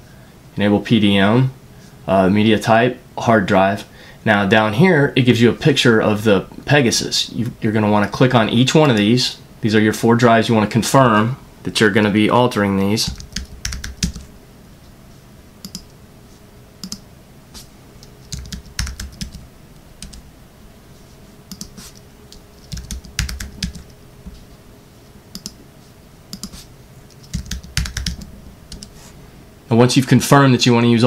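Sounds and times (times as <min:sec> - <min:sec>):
computer keyboard typing: 0:13.1 - 0:14.3, 0:15.6 - 0:15.9, 0:16.8 - 0:17.0, 0:18.0 - 0:19.4, 0:20.0 - 0:20.2, 0:21.5 - 0:23.9, 0:25.3 - 0:25.6, 0:26.3 - 0:29.0.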